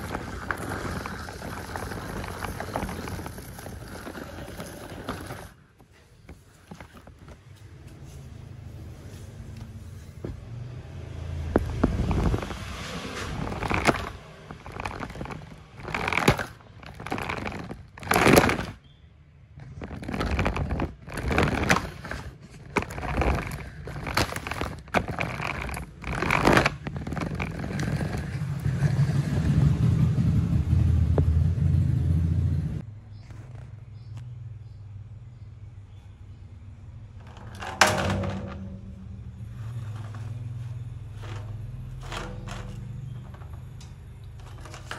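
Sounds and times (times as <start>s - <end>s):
toy trucks scraping on carpet: 0.0s - 7.2s, 11.8s - 18.8s, 19.6s - 29.7s, 39.5s - 44.9s.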